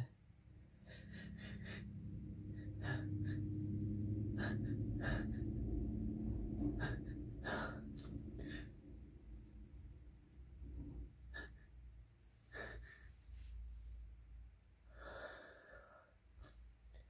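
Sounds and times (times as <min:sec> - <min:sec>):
low voiced strain: 0:00.8 - 0:11.6.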